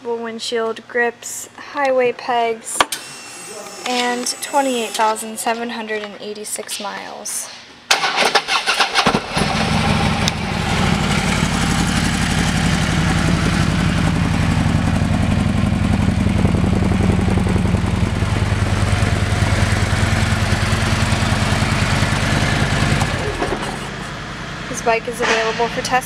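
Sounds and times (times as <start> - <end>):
motorcycle engine starting and idling: 7.9 - 26.0.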